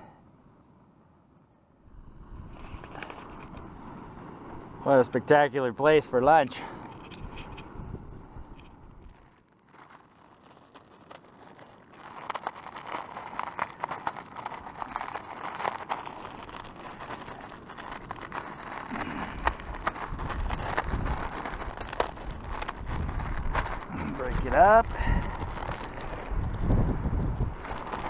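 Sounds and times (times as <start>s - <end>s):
plastic wrapper crinkling: 9.0s - 28.0s.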